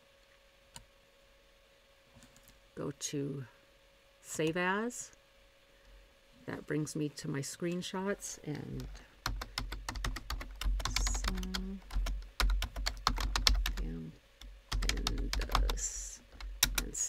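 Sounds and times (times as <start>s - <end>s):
typing on computer keyboard: 9.2s - 13.9s, 14.7s - 17.0s.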